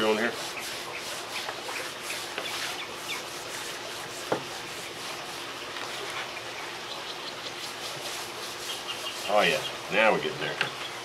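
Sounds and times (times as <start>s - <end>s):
birds chirping: 0.0s - 3.4s, 4.8s - 11.0s
hand rubbing meat: 7.5s - 9.7s.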